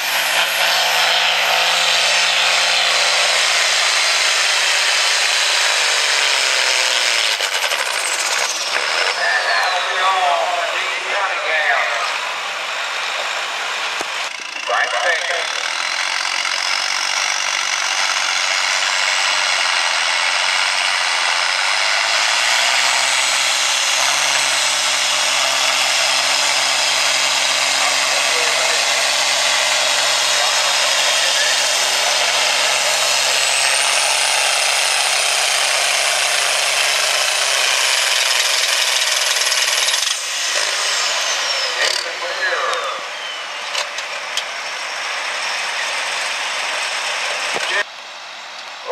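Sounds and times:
high engine whine: 0.0 - 48.9
tractor engine running under load: 12.2 - 41.9.

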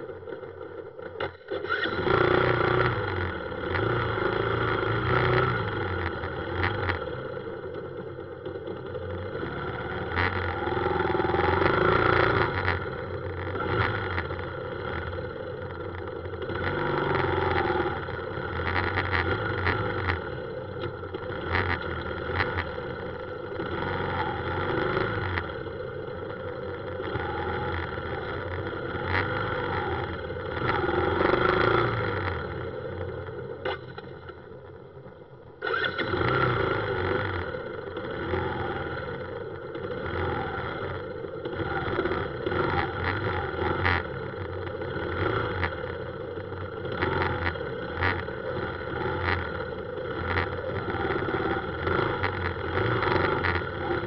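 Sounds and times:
road noise: 0.0 - 54.0
scooters and cars passing: 0.0 - 54.0
small motorbike engine running: 0.0 - 54.0.

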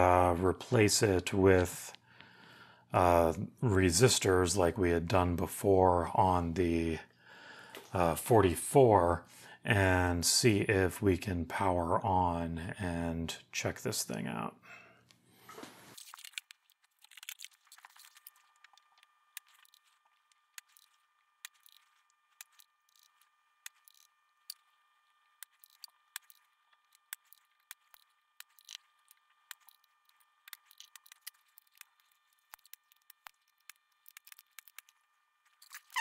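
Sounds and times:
hand tools clicking on circuit board: 18.1 - 24.7, 25.4 - 35.0.

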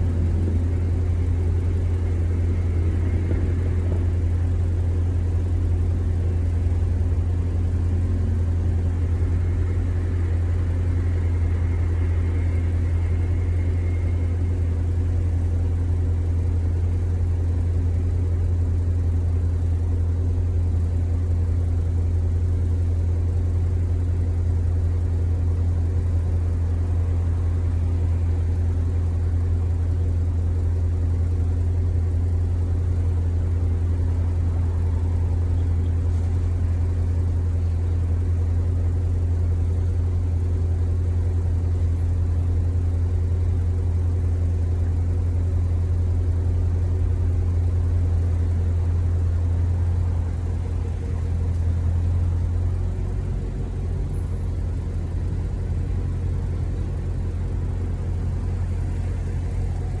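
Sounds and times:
low mechanical hum: 0.0 - 60.0.

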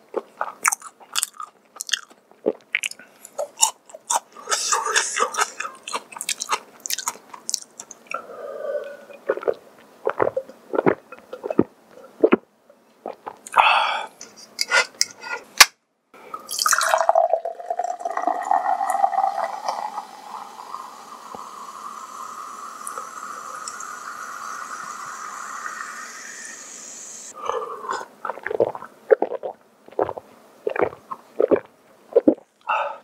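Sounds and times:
soda pouring into a glass: 16.4 - 27.3
fizzing hiss: 18.3 - 27.3.

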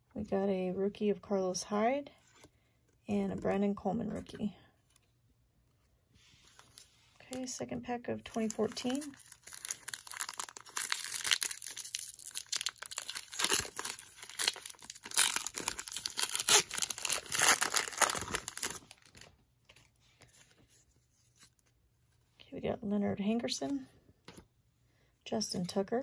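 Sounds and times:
foil wrapper crinkling and tearing: 8.3 - 19.4.

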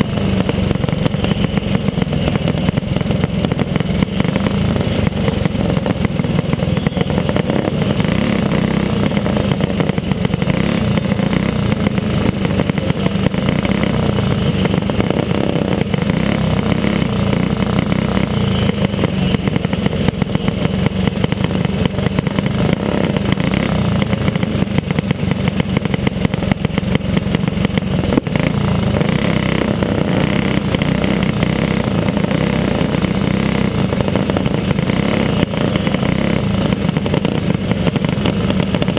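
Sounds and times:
another go-kart engine ahead: 0.0 - 38.9
go-kart engine racing: 0.0 - 38.9.

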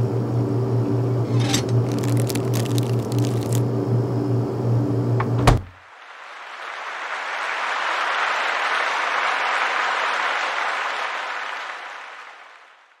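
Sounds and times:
audience applause: 5.8 - 13.0.

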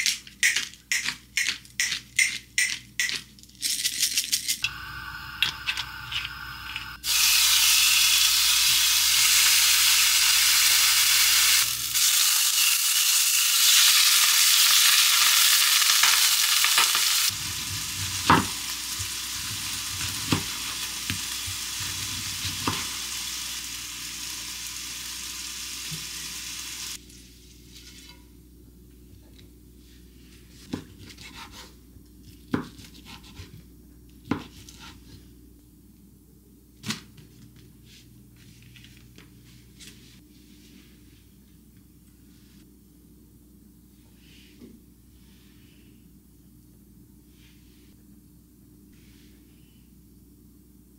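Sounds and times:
chicken sizzling in a pan: 7.0 - 27.0.

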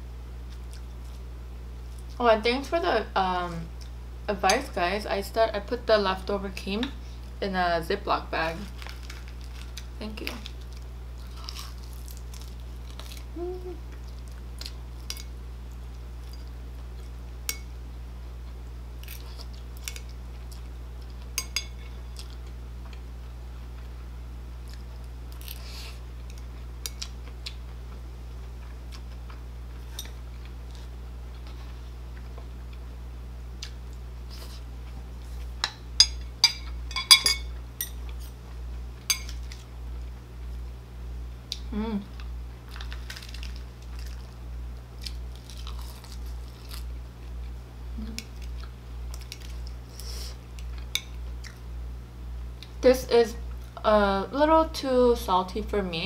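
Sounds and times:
chewing: 45.0 - 46.9.

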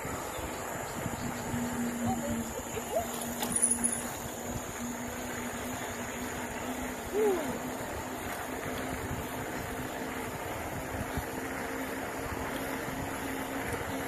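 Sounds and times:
wind noise on microphone: 0.0 - 5.0
steady low hum: 0.0 - 14.0.

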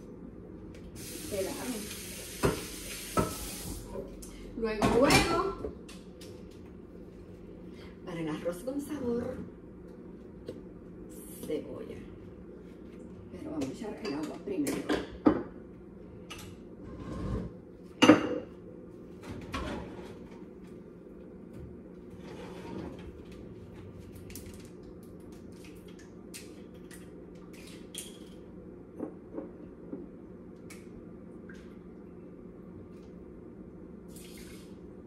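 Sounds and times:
steady low hum: 3.8 - 35.0.

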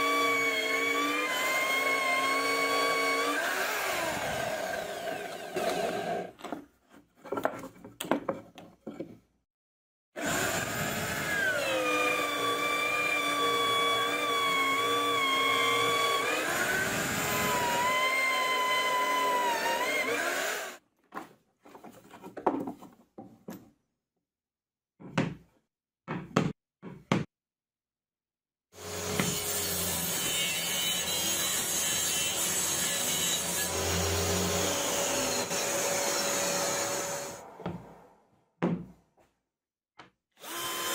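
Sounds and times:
drill press boring wood: 0.0 - 6.3, 10.2 - 20.8, 32.6 - 37.4, 40.4 - 40.9
table saw ripping wood: 0.0 - 6.4.

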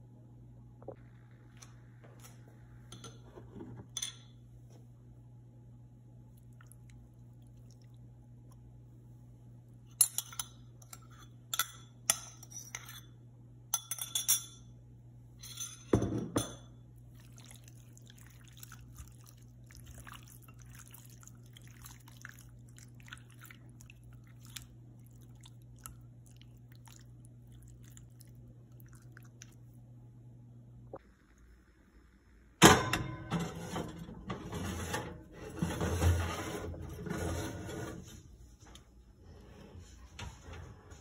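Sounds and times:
steady low hum: 0.0 - 41.0
wet squishing of hands: 6.3 - 8.2, 17.0 - 29.8
metal spoon clinking ceramic bowl: 9.9 - 13.0, 13.7 - 14.7, 15.4 - 16.7.

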